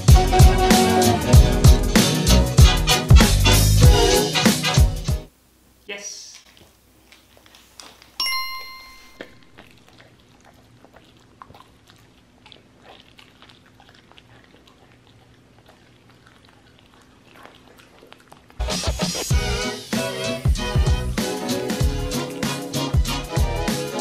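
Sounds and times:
dog chewing and licking meat: 0:06.4 - 0:24.0
bright ringing chime: 0:08.2 - 0:09.6.

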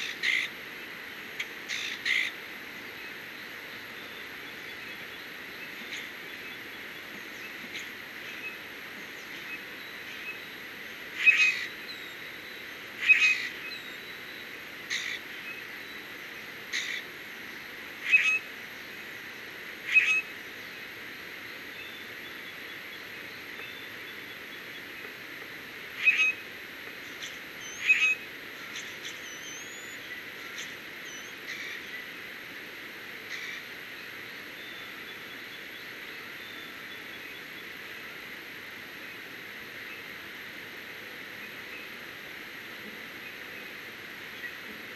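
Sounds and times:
faint songbird chirps: 0:00.0 - 0:19.0, 0:19.8 - 0:25.2, 0:25.9 - 0:32.2, 0:33.2 - 0:38.0, 0:41.3 - 0:42.0.

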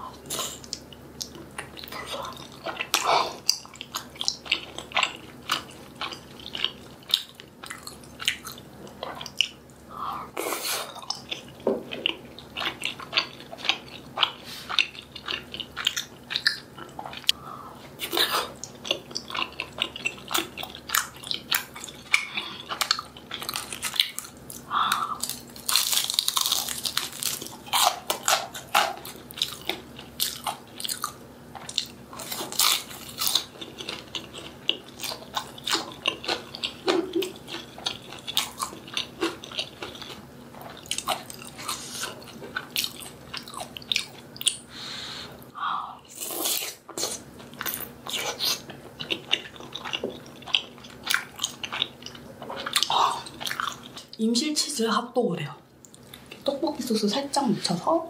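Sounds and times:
person chewing food: 0:00.0 - 0:54.2, 0:55.7 - 0:56.5
crunching: 0:19.2 - 0:44.6.

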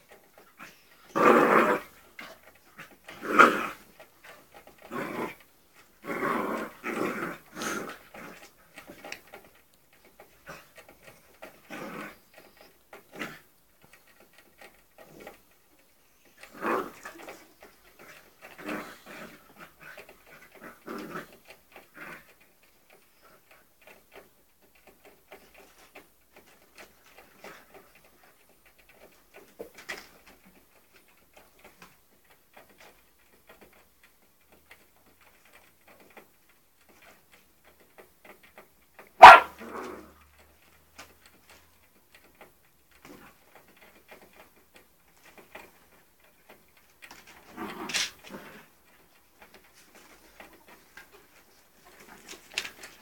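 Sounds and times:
faint clicks and scuffles: 0:06.7 - 0:53.0
puppy yelping and whimpering: 0:39.2 - 0:39.5
dog barking: 0:39.2 - 0:39.6.

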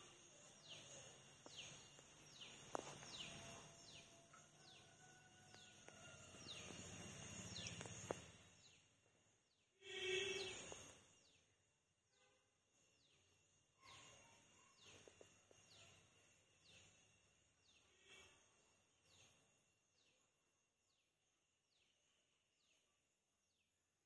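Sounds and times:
bird chirping: 0:00.0 - 0:11.6.

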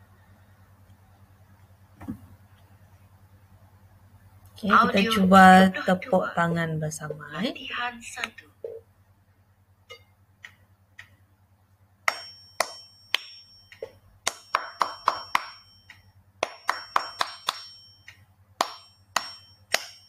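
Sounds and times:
faint high ringing tones: 0:12.0 - 0:20.0
hand claps: 0:12.1 - 0:20.0.

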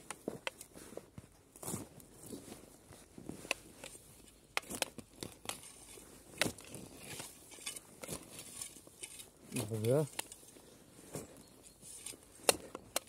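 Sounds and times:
spade chopping and scraping soil: 0:03.4 - 0:10.5, 0:11.9 - 0:13.0.

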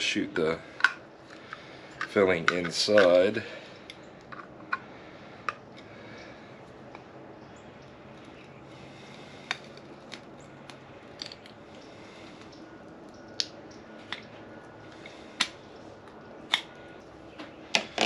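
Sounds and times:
sharp clicks and crackles: 0:08.1 - 0:18.0.

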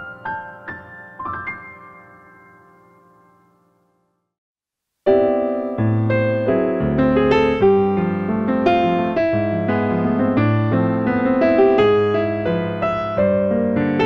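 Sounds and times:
synthesizer piano chords and bass: 0:05.1 - 0:14.0.

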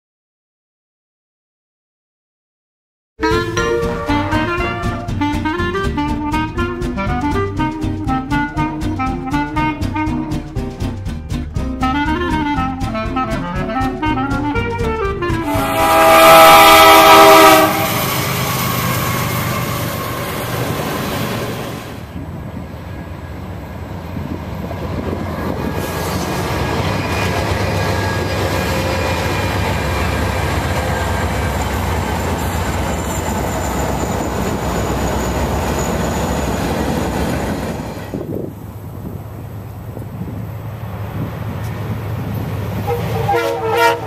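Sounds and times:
locomotive air horn: 0:03.2 - 0:10.6, 0:11.8 - 0:20.4, 0:42.8 - 0:44.0
train rumbling past: 0:03.2 - 0:44.0.

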